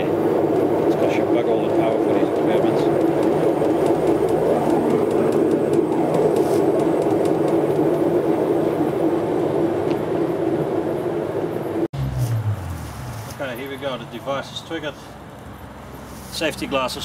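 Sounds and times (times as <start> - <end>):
washing machine motor drone: 0.0 - 11.9.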